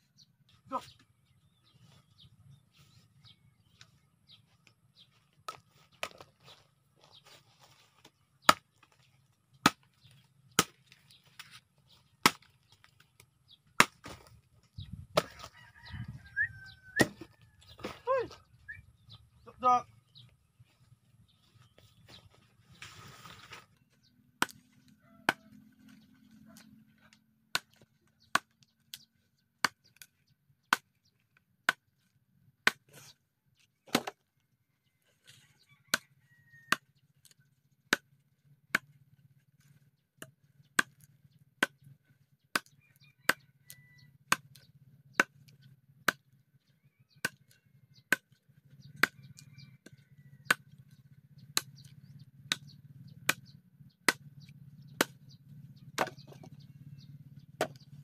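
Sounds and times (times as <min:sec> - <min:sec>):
knife chopping into tree: 0:09.6 - 0:11.5, 0:12.2 - 0:12.6, 0:13.8 - 0:14.4, 0:16.9 - 0:18.0, 0:24.4 - 0:26.0, 0:32.6 - 0:33.2, 0:33.8 - 0:34.2, 0:42.5 - 0:43.5, 0:44.3 - 0:46.2, 0:47.1 - 0:50.7, 0:56.0 - 0:56.5, 0:57.6 - 0:57.8.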